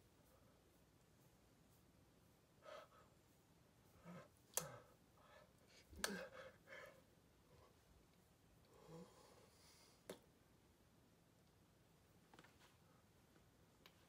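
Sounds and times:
faint breaths and mouth noises: 0.0 - 10.3.

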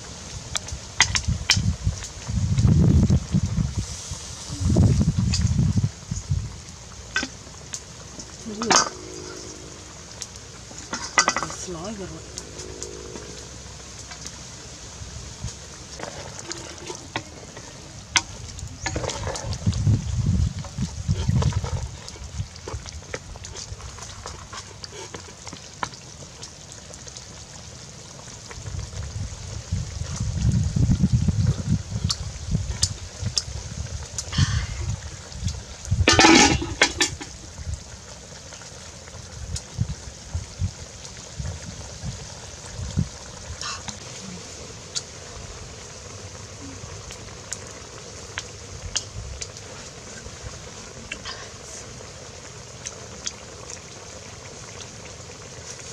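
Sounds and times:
faint hiss: 0.0 - 55.9
low uneven rumble: 0.0 - 55.9
soup bubbling in a pot: 0.0 - 55.9
pot lid and spoon clattering: 36.1 - 37.2.

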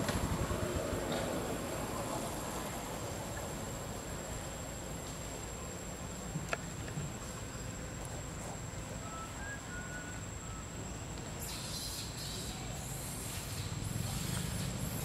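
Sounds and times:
high-pitched insect drone: 7.6 - 15.0.

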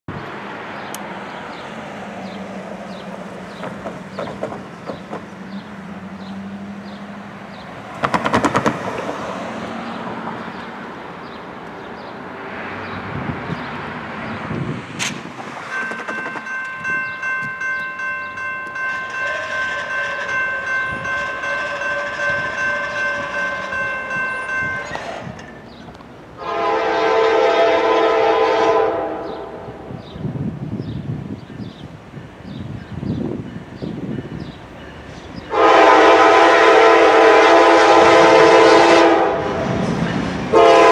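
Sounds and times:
railroad crossing bell ringing: 15.6 - 25.8, 31.5 - 37.3
locomotive horn: 18.9 - 25.4, 26.4 - 29.8, 35.5 - 39.8, 40.5 - 40.9.

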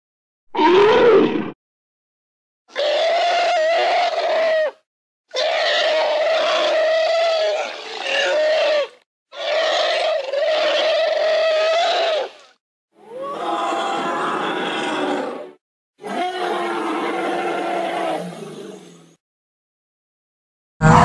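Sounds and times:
elephant-like mammoth calls: 13.0 - 19.0.

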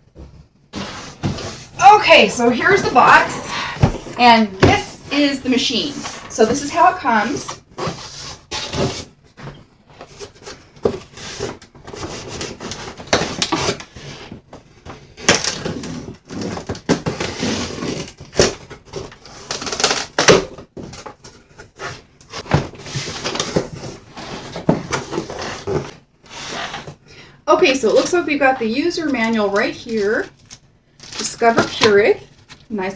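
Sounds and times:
cardboard box rustling and scraping: 0.8 - 14.4, 20.9 - 27.0.

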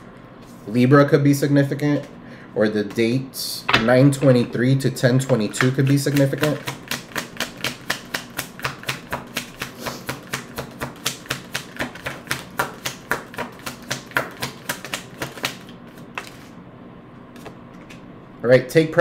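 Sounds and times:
cards shuffling: 5.2 - 16.6.

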